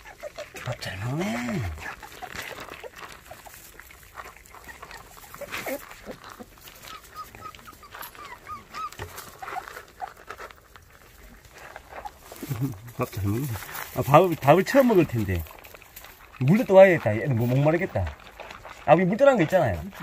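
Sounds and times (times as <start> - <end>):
puppy whimpers: 0.0 - 10.3
puppies crunching kibble: 0.0 - 20.0.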